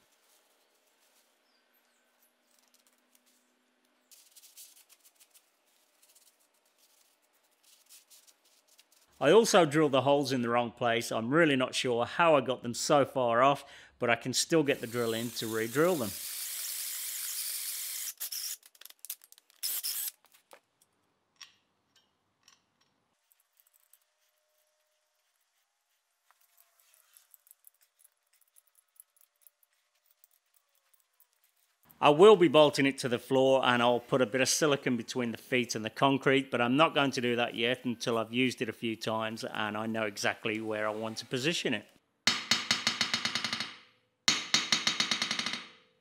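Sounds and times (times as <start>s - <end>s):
drill drilling into steel: 14.8s - 18.6s, 19.6s - 20.2s
faint metal clicks and taps: 20.5s - 24.0s.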